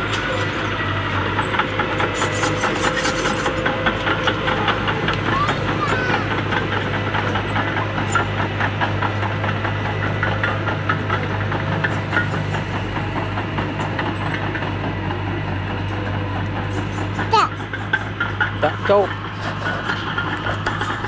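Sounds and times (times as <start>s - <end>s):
bulldozer diesel engine: 0.0s - 21.0s
steel tracks clanking: 0.0s - 21.0s.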